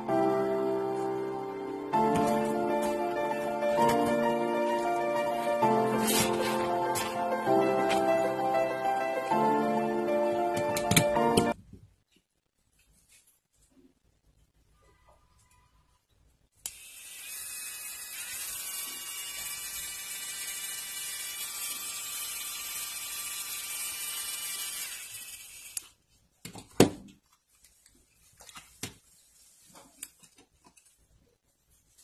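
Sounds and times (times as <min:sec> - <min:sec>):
electric nail drill whine: 0:16.7 - 0:25.9.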